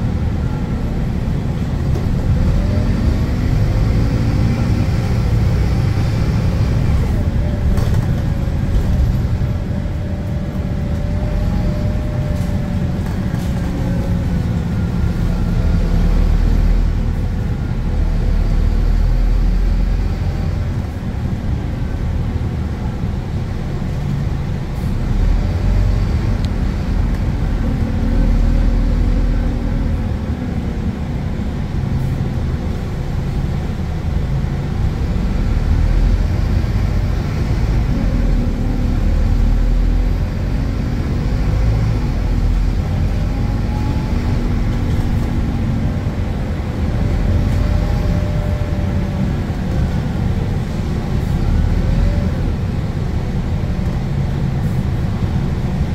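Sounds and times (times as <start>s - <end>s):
bus engine rumble: 0.0s - 55.9s.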